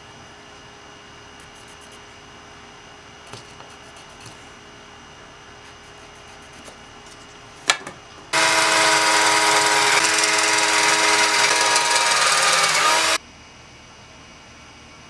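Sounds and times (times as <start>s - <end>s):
cordless drill boring: 8.4s - 13.2s.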